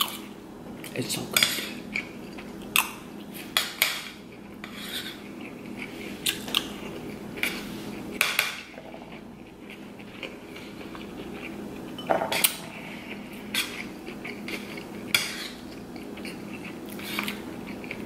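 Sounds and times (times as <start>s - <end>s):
faint chewing: 0.0s - 18.0s
metal spoon scraping a plate: 3.9s - 5.9s.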